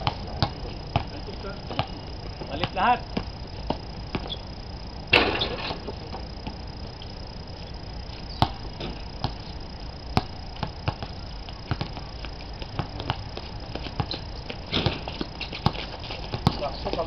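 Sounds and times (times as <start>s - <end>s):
basketball bouncing on concrete: 0.0s - 2.0s, 2.6s - 4.4s, 8.4s - 9.4s, 10.2s - 17.0s
high thin whine: 0.0s - 17.0s.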